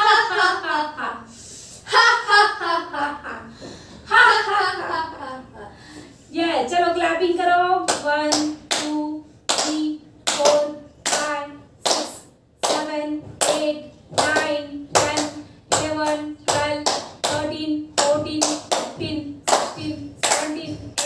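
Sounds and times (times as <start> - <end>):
hands clapping in rhythm: 7.9 - 21.0.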